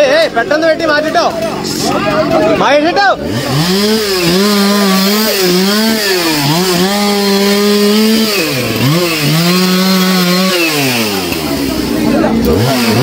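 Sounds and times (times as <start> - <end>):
chainsaw cutting wood: 3.2 - 13.0.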